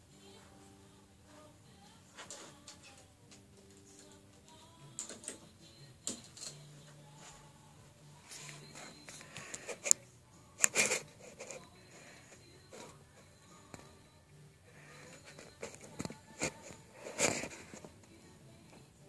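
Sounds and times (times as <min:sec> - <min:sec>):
faint steady tones: 0:00.0 - 0:19.0
small clicks and knocks: 0:02.2 - 0:07.0.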